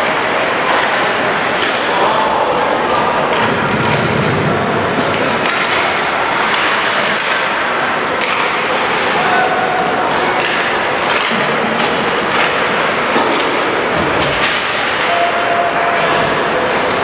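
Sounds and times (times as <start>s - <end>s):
hockey sticks clacking on puck: 0.0s - 17.0s
skates and arena noise: 0.0s - 17.0s.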